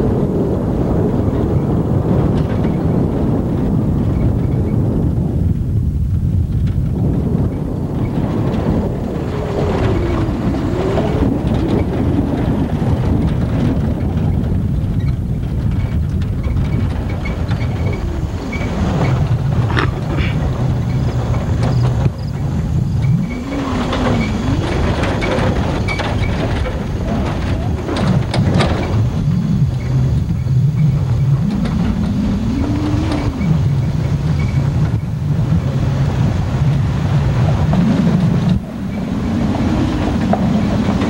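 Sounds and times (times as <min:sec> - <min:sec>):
truck engine and road noise: 0:00.0 - 0:41.0
rattles and knocks: 0:05.6 - 0:35.2
sharp jolt: 0:17.5 - 0:20.9.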